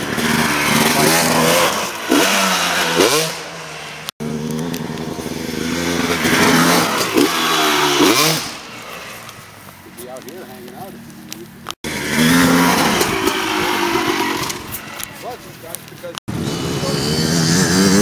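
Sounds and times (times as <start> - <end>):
dirt bike engine revving: 0.0 - 9.6, 11.8 - 18.0.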